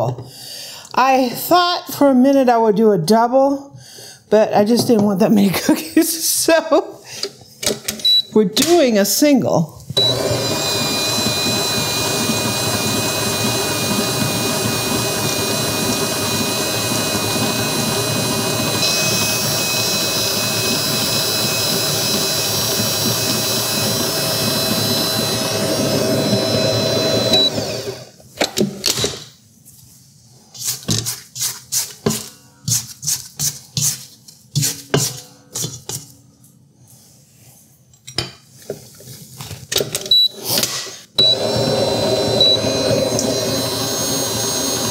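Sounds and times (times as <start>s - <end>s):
stand mixer motor humming: 10.0s - 28.1s, 41.2s - 44.9s.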